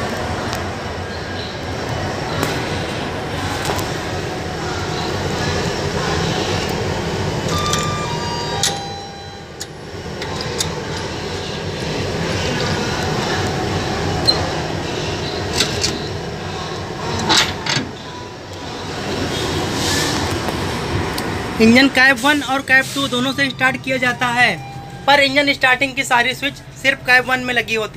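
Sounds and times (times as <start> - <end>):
rail yard rumble: 0.0 - 27.9
metal clicks and clanks: 9.6 - 11.2.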